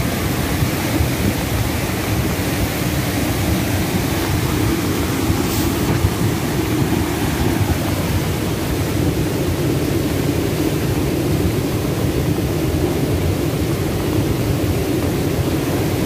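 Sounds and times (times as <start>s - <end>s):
flooded river rushing: 0.0s - 16.0s.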